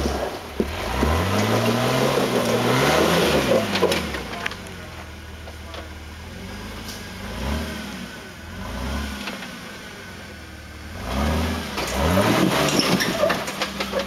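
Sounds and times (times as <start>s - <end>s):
engine revving in bursts: 0.7s - 4.2s, 6.4s - 9.6s, 10.9s - 13.5s.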